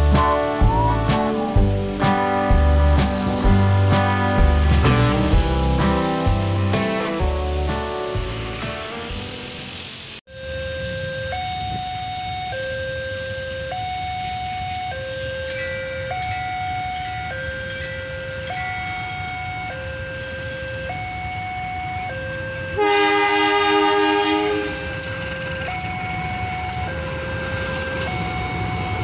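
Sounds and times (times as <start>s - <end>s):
locomotive horn: 0.0s - 9.1s, 21.6s - 26.4s
two-tone electronic warning alarm: 0.0s - 9.3s, 10.3s - 29.0s
train rumbling: 0.0s - 10.2s, 15.5s - 29.0s.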